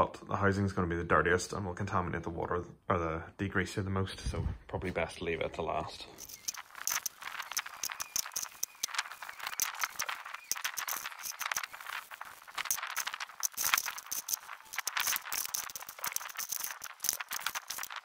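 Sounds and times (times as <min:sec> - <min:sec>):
liquid swishing: 0:06.2 - 0:18.0
metal parts clinking in bucket: 0:06.2 - 0:18.0.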